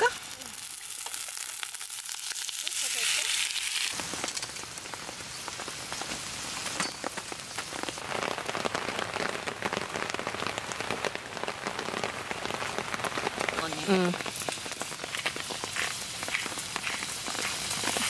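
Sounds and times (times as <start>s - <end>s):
rain pattering: 3.8s - 18.0s.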